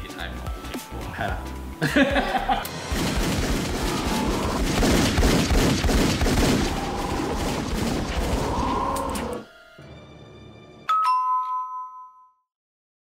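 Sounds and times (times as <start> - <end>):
rapid pistol gunfire: 2.7 - 8.6.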